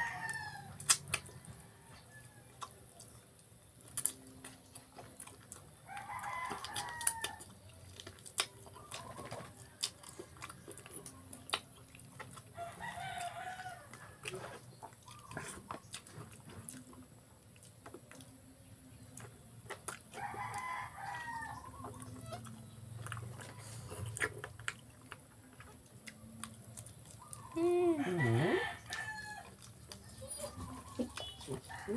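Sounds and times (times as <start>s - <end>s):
rooster crowing: 0.0s - 0.8s, 5.9s - 7.5s, 12.6s - 14.0s, 27.9s - 31.9s
person eating with hands: 0.2s - 1.4s, 2.5s - 31.9s.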